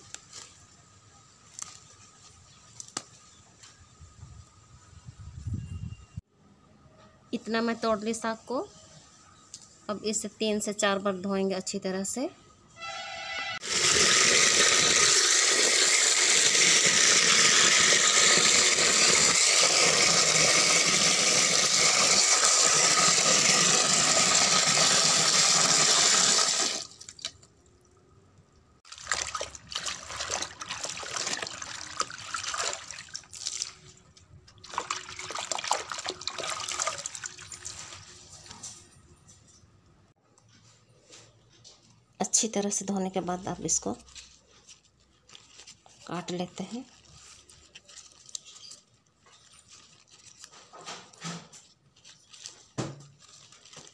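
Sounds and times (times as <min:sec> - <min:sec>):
tap water pouring into bucket: 0:13.6 - 0:27.5, 0:28.9 - 0:33.8, 0:34.6 - 0:38.0
water splashing from washing leaves: 0:13.6 - 0:27.5, 0:28.9 - 0:38.1, 0:52.0 - 0:53.9.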